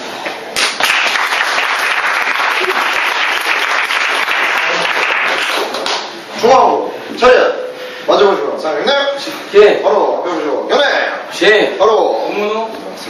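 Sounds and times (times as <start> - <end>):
group applause: 0.5 - 6.2.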